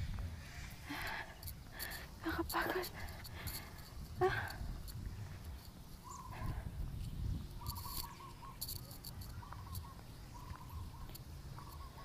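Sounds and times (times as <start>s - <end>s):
wind rumble on microphone: 0.0s - 12.0s
trilled chirping calls: 5.5s - 6.5s, 7.5s - 12.0s.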